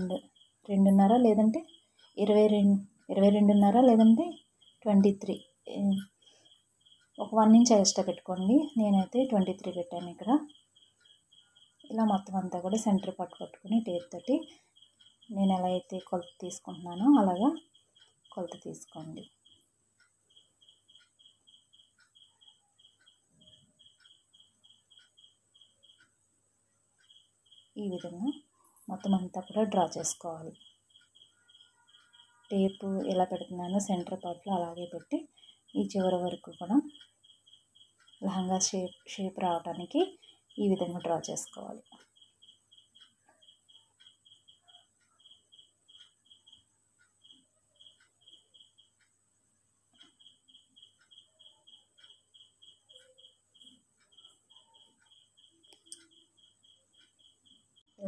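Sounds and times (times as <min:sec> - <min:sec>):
faint even chirping: 0:00.0 - 0:58.0
faint tick: 0:17.6 - 0:18.6, 0:19.2 - 0:26.2, 0:41.8 - 0:49.2, 0:49.9 - 0:57.9.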